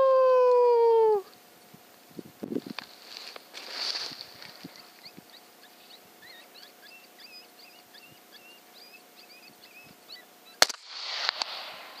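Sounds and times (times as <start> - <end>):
coyotes yipping and whining: 4.7 - 10.6
rifle shot: 10.6 - 12.0
sharp crack: 10.6 - 12.0.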